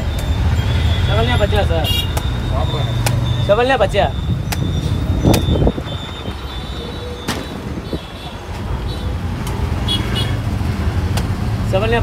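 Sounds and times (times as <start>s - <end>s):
low rumble of road traffic: 0.0s - 12.0s.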